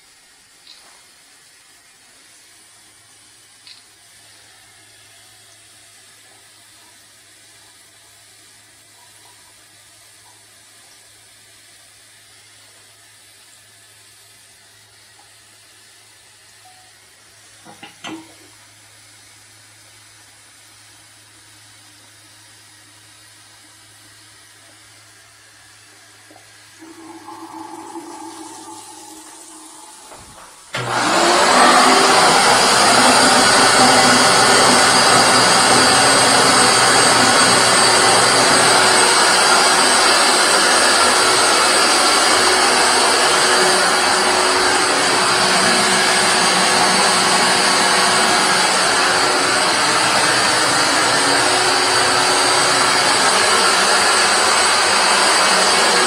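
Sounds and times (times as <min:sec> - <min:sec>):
tap water running into basin: 0:26.2 - 0:31.4
wet vacuum sucking: 0:26.8 - 0:56.0.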